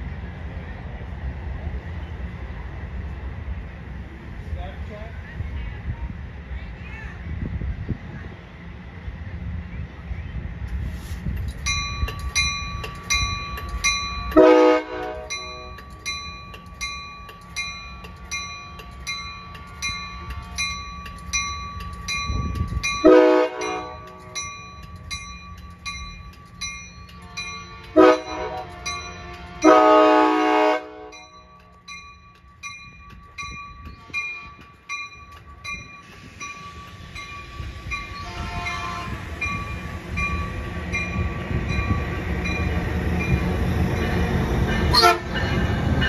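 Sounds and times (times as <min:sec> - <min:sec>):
railroad crossing bell ringing: 0:11.5 - 0:46.0
train horn blasts: 0:14.3 - 0:15.7, 0:19.5 - 0:20.8, 0:23.0 - 0:24.4, 0:27.1 - 0:31.3, 0:37.5 - 0:39.2, 0:44.9 - 0:45.5.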